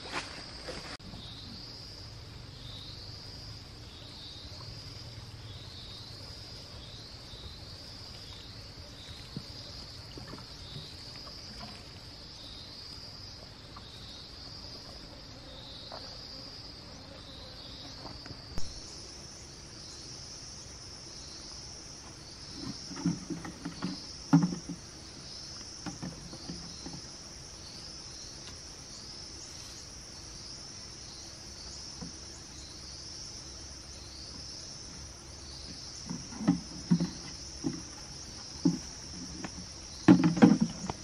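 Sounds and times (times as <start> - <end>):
insects chirping: 0.0 - 41.0
thumps and knocks of garden tools: 22.5 - 24.9, 25.6 - 27.1, 35.6 - 41.0.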